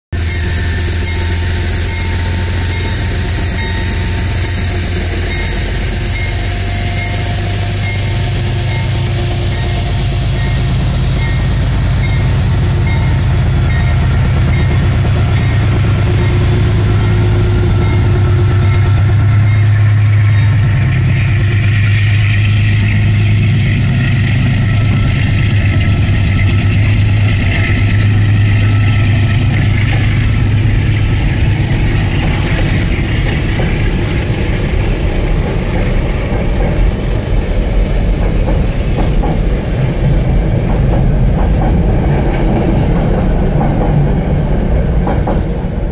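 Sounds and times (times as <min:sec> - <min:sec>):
diesel locomotive engine drone: 0:00.1 - 0:45.9
train wheels rumbling on rails: 0:00.1 - 0:45.9.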